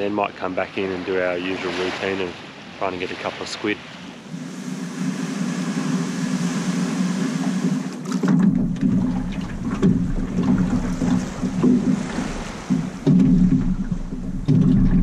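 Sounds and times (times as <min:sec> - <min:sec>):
outboard motor running: 0:04.2 - 0:15.0
deep rumble: 0:08.4 - 0:15.0.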